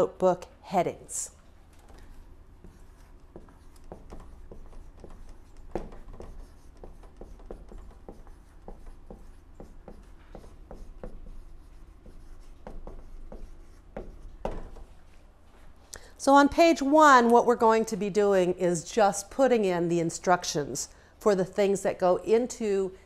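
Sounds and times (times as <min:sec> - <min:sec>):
marker writing on a whiteboard: 0:01.7 - 0:15.3.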